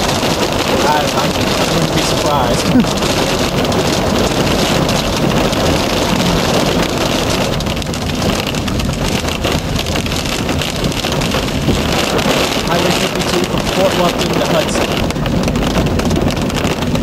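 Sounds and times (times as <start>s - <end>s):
hail and rain on vehicle roof: 0.0s - 17.0s
tyres on road: 0.0s - 17.0s.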